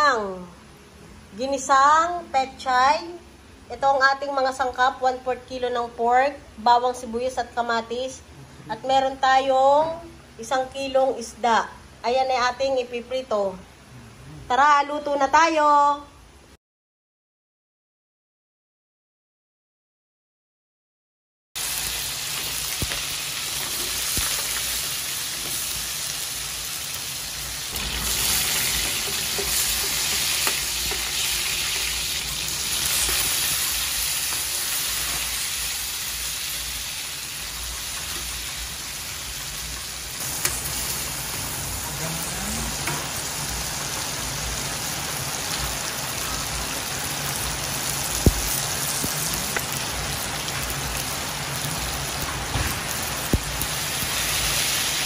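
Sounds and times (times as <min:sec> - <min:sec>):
meat sizzling in oil: 0:21.6 - 0:55.0.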